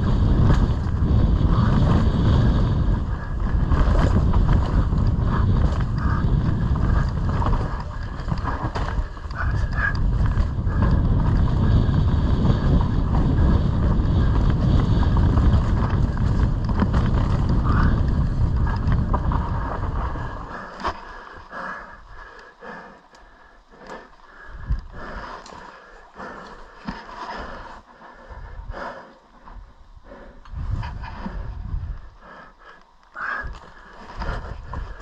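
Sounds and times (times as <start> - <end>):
bike rattles and knocks: 0.0 - 21.1
wind on microphone: 0.0 - 22.2, 24.4 - 25.4, 29.4 - 32.3, 33.2 - 35.0
bike tyres rumbling on dirt: 0.0 - 22.9, 23.9 - 35.0.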